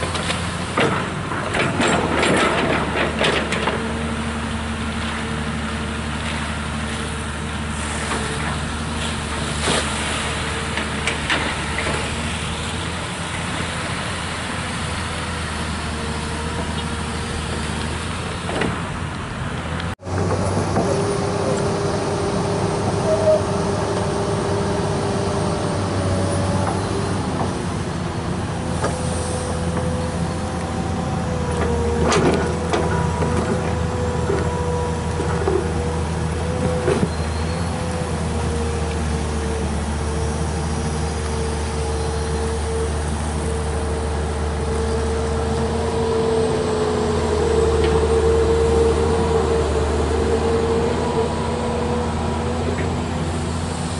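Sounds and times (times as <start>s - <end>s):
excavator diesel engine running: 0.0s - 53.9s
hydraulic whine: 20.0s - 53.9s.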